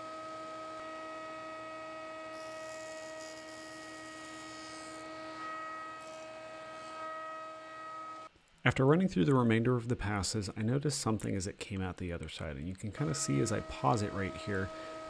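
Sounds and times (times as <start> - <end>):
planer humming: 13.0 - 15.0
wood hissing across cutters: 13.0 - 15.0.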